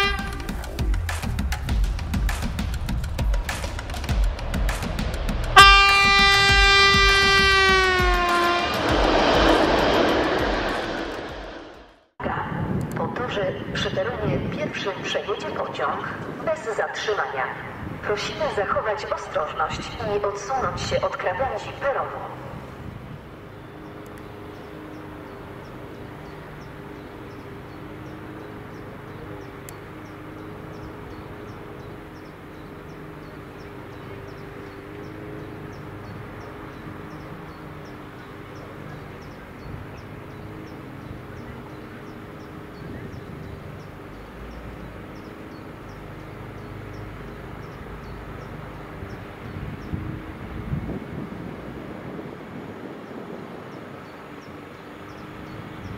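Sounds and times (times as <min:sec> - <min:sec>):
electric locomotive humming: 0:00.0 - 0:01.7, 0:02.7 - 0:12.2, 0:16.6 - 0:55.9
train rumbling: 0:02.8 - 0:12.2.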